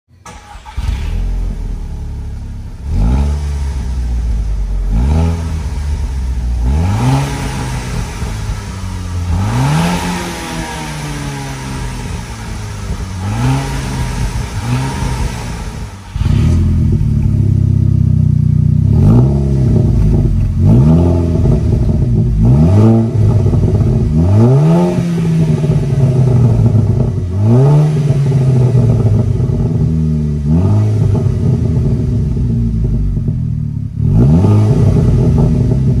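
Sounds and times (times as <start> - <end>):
car engine idling: 0.1 - 36.0
car engine revving: 0.2 - 36.0.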